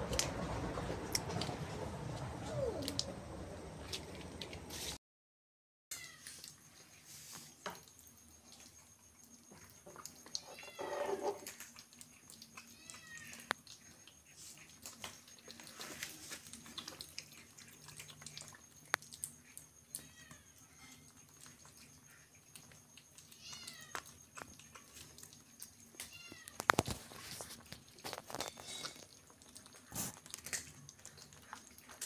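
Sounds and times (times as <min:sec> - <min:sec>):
kittens chewing and plate clicks: 0:07.8 - 0:32.0.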